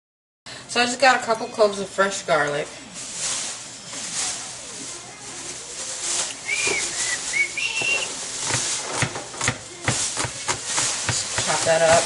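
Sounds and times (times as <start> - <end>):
steady sizzling hiss: 0.8 - 12.0
short whistled notes: 6.4 - 8.1.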